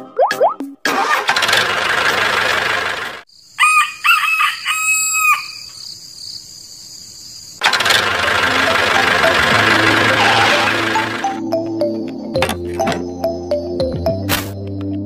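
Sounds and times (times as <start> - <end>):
rooster crowing: 3.6 - 5.8
loud noisy din: 8.0 - 11.3.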